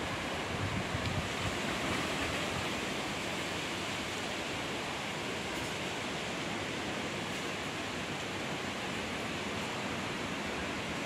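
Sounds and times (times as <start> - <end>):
wind through tree leaves: 0.0 - 11.0
wind buffeting microphone: 0.4 - 1.7.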